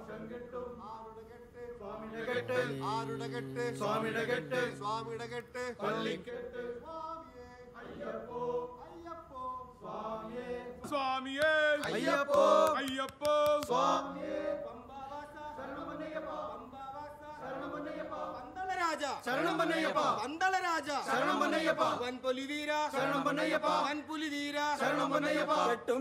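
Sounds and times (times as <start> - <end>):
men chanting together: 1.8 - 7.1, 9.8 - 13.0, 13.6 - 20.3, 21.0 - 22.2, 22.8 - 26.0.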